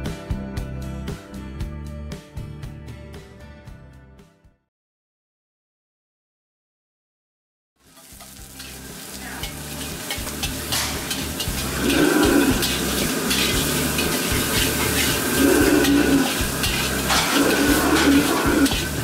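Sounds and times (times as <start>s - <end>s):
meat sizzling in a wok: 7.8s - 19.0s
metal ladle scraping a wok: 7.9s - 19.0s.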